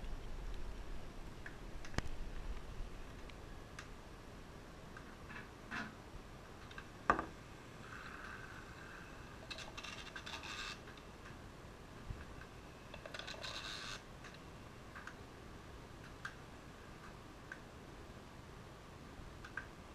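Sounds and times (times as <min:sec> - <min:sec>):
faint clicks: 0:19.4 - 0:19.8.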